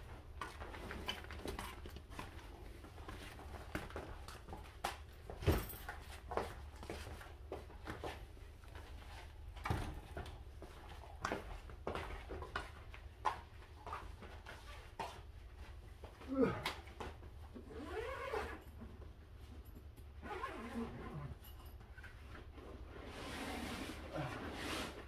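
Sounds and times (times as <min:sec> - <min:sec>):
gear and bags being handled: 0:17.5 - 0:25.0.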